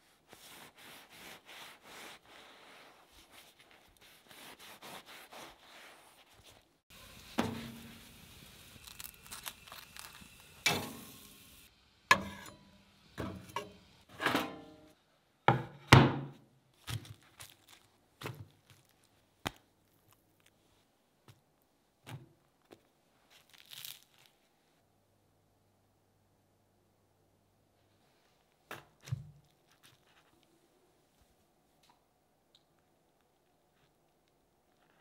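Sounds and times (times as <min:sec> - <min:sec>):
patties sizzling on grill: 0:06.9 - 0:14.1.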